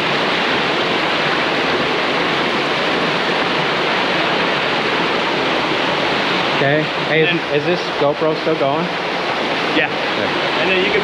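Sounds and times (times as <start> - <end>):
water rushing over small waterfall: 0.0 - 11.0.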